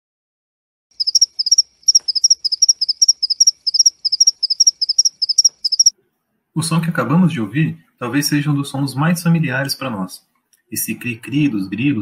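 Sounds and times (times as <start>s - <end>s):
cricket chirping: 1.0s - 5.9s.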